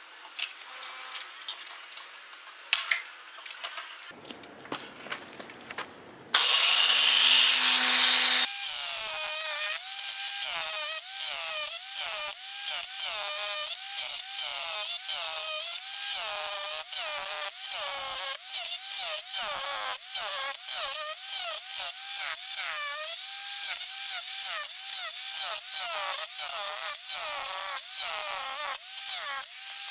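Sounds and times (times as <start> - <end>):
grinder motor whine: 6.4 - 10.5.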